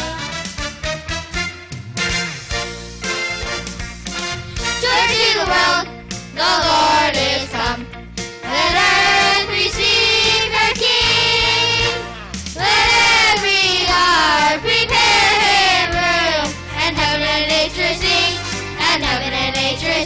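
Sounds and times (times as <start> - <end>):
instrumental accompaniment: 0.0 - 20.0
children singing: 4.8 - 7.8, 8.5 - 12.0, 12.6 - 20.0.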